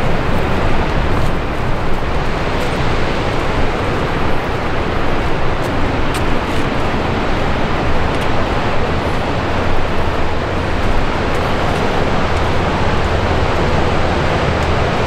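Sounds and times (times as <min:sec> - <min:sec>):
surf breaking on rocks: 0:00.0 - 0:15.0
wind buffeting microphone: 0:00.0 - 0:15.0.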